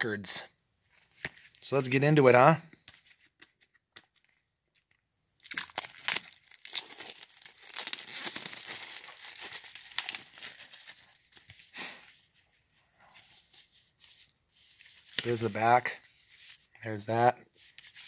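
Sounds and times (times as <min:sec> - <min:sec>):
plastic shrink-wrap tearing: 0:05.4 - 0:10.8.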